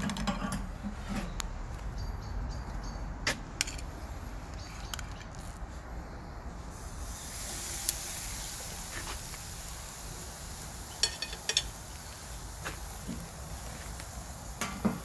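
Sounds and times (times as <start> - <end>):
steak sizzling on grill: 6.7 - 15.0.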